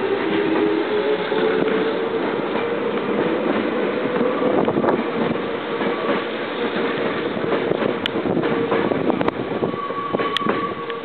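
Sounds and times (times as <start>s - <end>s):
electric train running past: 0.0s - 11.0s
train hum: 0.0s - 11.0s.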